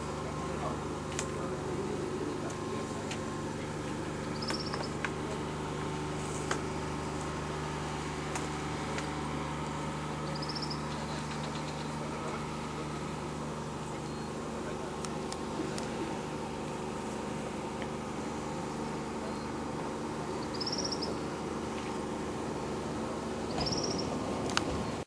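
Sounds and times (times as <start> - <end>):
tractor engine humming: 0.0 - 25.0.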